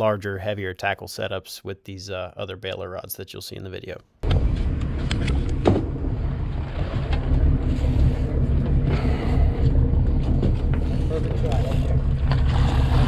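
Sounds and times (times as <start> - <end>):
boat engine low rumble: 4.2 - 13.0
wind buffeting microphone: 4.2 - 13.0.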